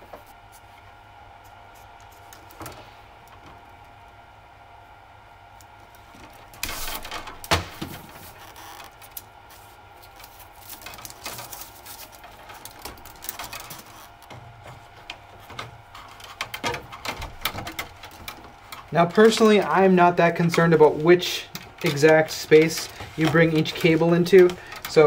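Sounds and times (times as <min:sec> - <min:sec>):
plastic sheathing rustling: 0:05.9 - 0:25.0.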